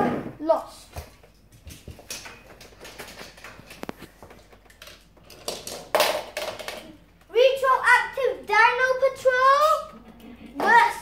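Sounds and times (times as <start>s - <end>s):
toy cars clattering: 1.7s - 7.0s.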